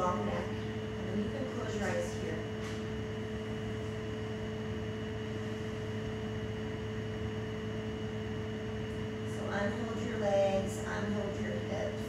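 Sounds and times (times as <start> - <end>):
background hum with held tones: 0.0 - 12.0.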